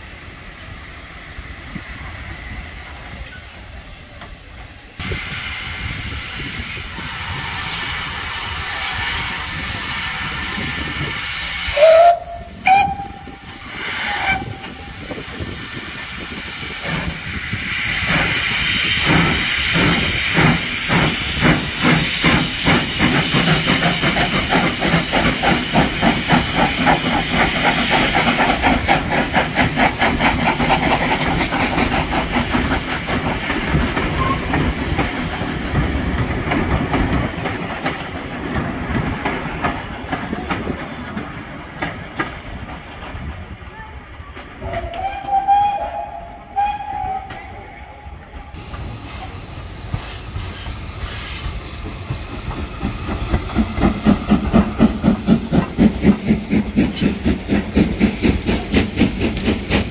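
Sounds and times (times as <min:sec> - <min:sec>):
steam hissing: 0:04.6 - 0:42.6, 0:48.1 - 0:59.9
steam whistle: 0:11.6 - 0:15.0, 0:44.6 - 0:47.6.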